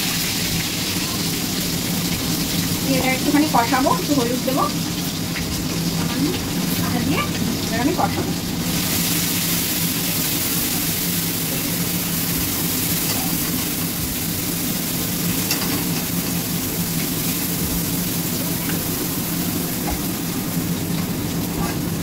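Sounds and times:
paste sizzling in hot oil: 0.0 - 22.0.

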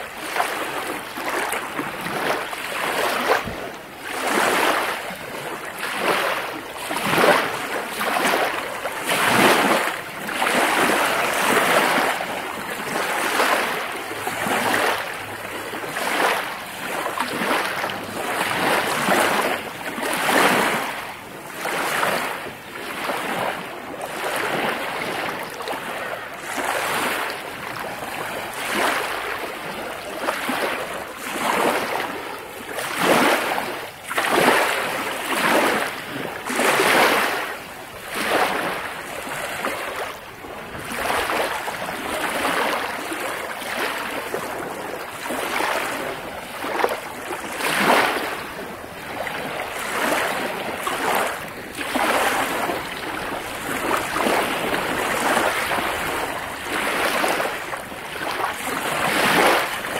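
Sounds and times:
lake waves splashing: 0.0 - 59.9.

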